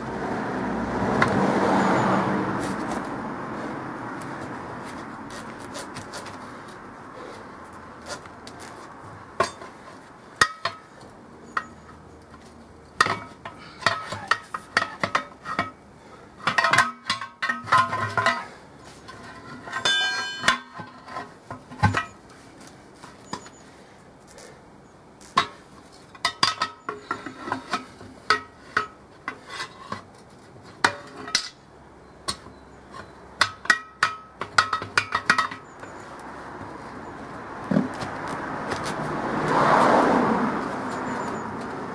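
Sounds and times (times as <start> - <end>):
tyre levers scraping metal rim: 4.2 - 7.4, 8.0 - 15.8, 16.4 - 22.4, 25.2 - 31.6, 32.2 - 36.9
metallic ringing clang: 19.8 - 20.8.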